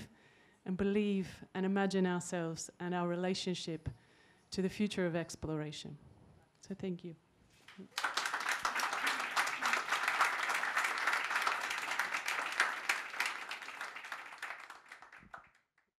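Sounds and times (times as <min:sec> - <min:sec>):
audience applauding: 0:07.7 - 0:15.6.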